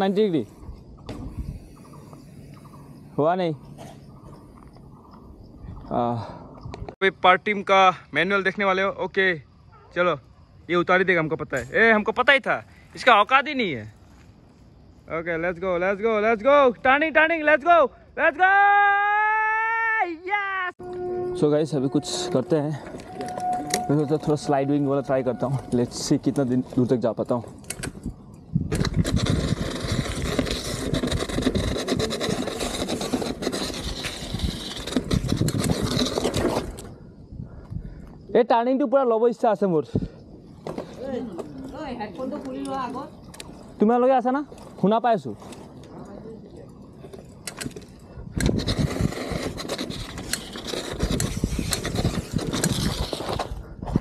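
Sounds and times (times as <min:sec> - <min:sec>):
bike tyres on rough asphalt: 0:00.0 - 0:07.0, 0:11.8 - 0:16.0, 0:21.0 - 0:38.3, 0:40.1 - 0:54.0
wind rumble on microphone: 0:00.5 - 0:02.7, 0:27.7 - 0:38.3, 0:47.7 - 0:54.0.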